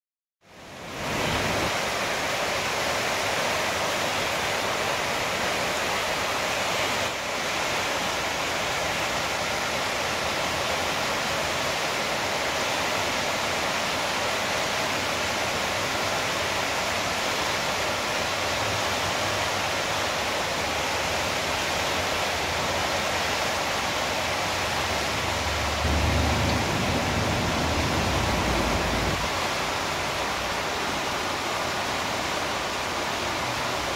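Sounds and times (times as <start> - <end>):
floodwater rushing: 0.5 - 33.9
deep water rumble: 24.9 - 29.4.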